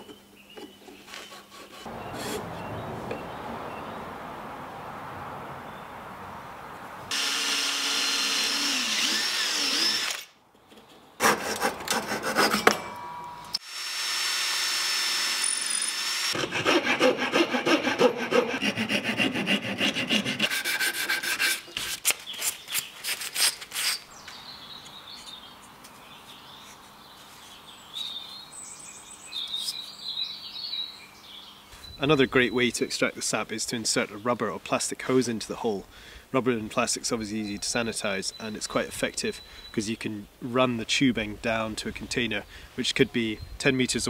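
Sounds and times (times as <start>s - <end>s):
wood scraping: 0.6s - 3.3s
sawing through wood: 1.2s - 2.7s, 7.1s - 10.3s, 11.2s - 12.7s, 13.6s - 22.1s
tool cutting wood: 7.1s - 10.3s, 11.2s - 12.8s, 13.6s - 22.5s.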